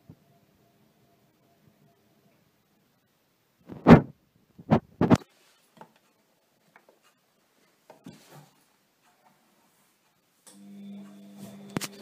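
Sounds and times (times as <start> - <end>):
rubbing sounds: 3.6 - 6.2
loud thumps: 3.7 - 5.2.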